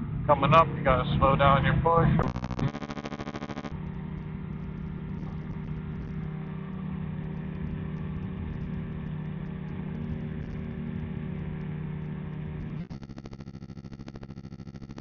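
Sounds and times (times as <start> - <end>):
light aircraft engine droning: 3.7 - 12.9.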